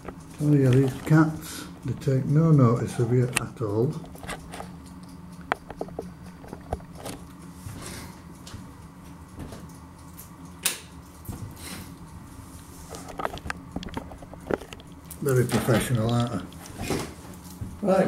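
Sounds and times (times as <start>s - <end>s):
objects clicking and rustling: 12.9s - 17.6s.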